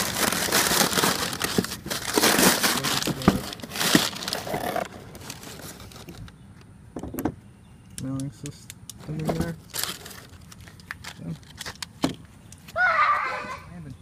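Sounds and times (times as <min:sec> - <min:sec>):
paper crumpling and rustling: 0:00.0 - 0:06.2, 0:09.0 - 0:11.9.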